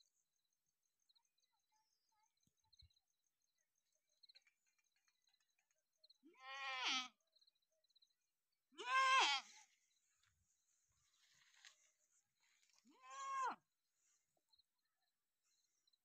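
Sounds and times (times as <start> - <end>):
goat bleating: 6.3 - 7.1, 8.8 - 9.6.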